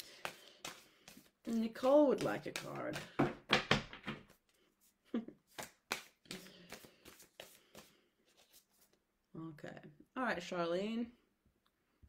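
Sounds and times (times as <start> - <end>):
cards being shuffled by hand: 0.0 - 9.0.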